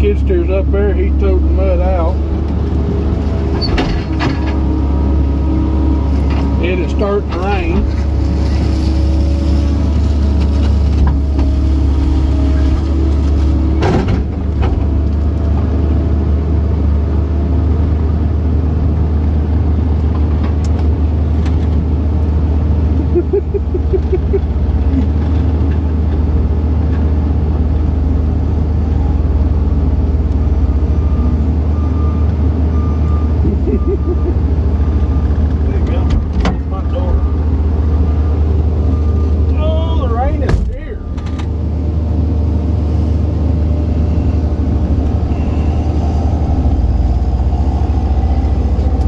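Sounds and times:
excavator diesel engine running: 0.0 - 49.0.

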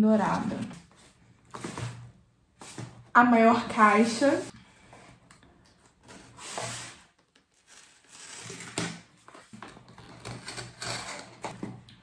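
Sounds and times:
cardboard scraping and rustling: 0.9 - 3.0, 5.9 - 11.8.

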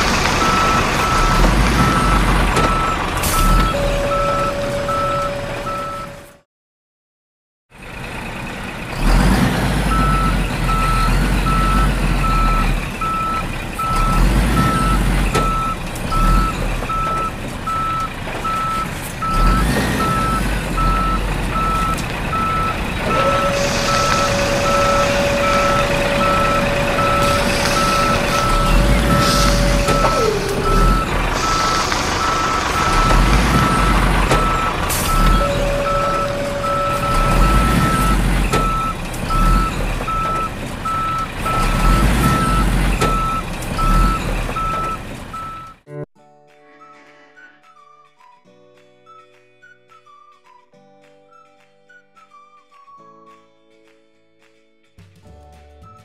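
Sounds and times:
low engine rumble: 0.0 - 6.3, 7.8 - 45.6
truck reversing alarm beeping: 0.0 - 6.4, 8.9 - 45.9
soil being dumped: 18.4 - 43.2
hydraulic whine: 19.2 - 40.5.

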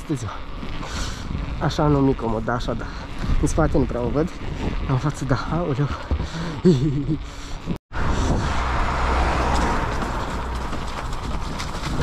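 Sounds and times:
wind rushing over microphone: 0.6 - 6.4, 7.9 - 12.0
low rumble: 8.0 - 12.0.

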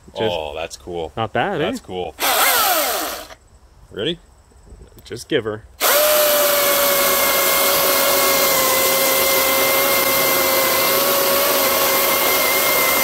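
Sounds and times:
cordless chainsaw whine: 2.2 - 3.4, 5.8 - 13.0.

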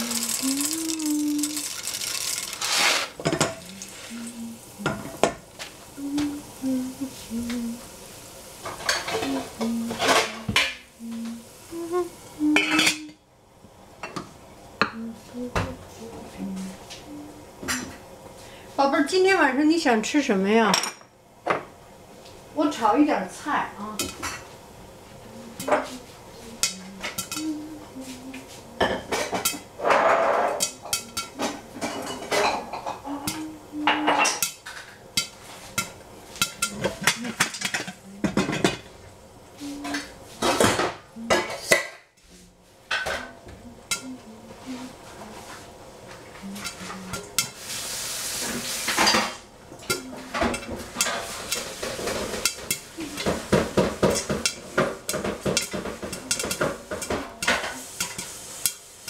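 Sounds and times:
pots and utensils clattering: 0.0 - 5.5, 8.6 - 10.9, 12.5 - 13.1, 24.0 - 24.5, 26.6 - 27.6, 28.8 - 39.0, 39.7 - 42.1, 42.9 - 44.2, 46.5 - 59.0.

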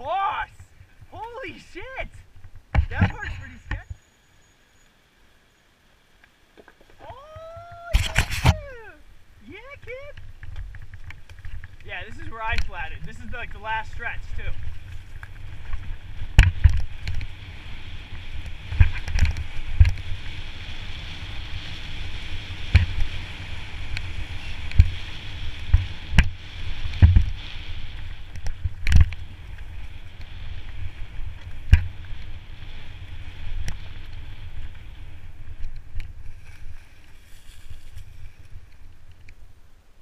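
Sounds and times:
bike tyres rumbling through leaves: 9.6 - 39.5
bike knocking and rattling: 10.2 - 39.3.

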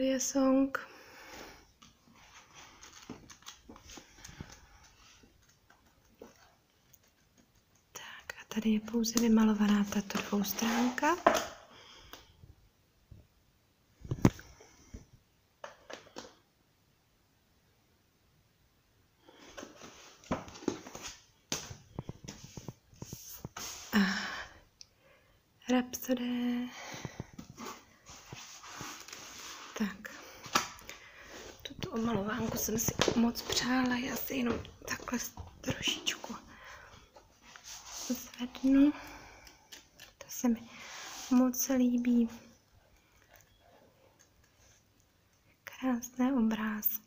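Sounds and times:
paper rustling: 2.0 - 7.6, 27.6 - 36.3.

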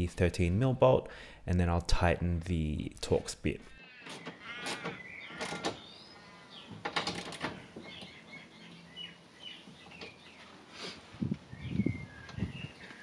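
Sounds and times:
small birds chirping: 3.8 - 13.0.

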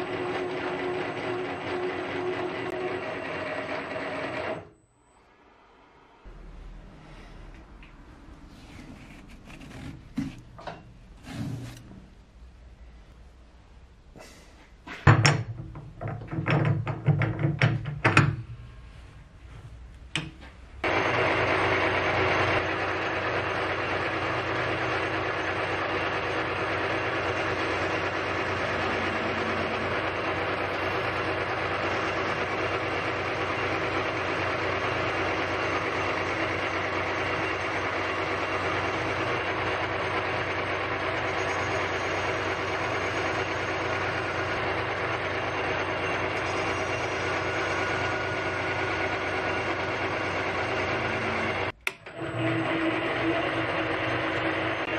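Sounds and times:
lathe mechanical hum: 0.0 - 12.2, 20.7 - 54.9
tool cutting metal: 24.2 - 54.9.

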